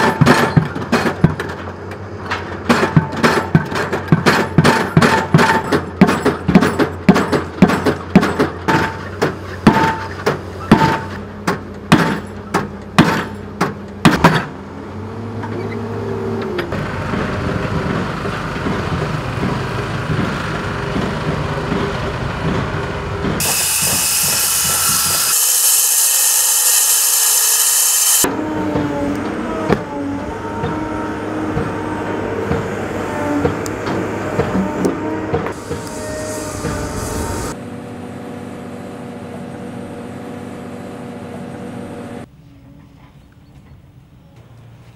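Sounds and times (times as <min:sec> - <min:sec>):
machinery engine rumble: 0:00.6 - 0:25.2
pile-driving hammer blows: 0:02.3 - 0:14.5, 0:17.1 - 0:26.3
angle grinder cutting concrete: 0:23.4 - 0:28.3.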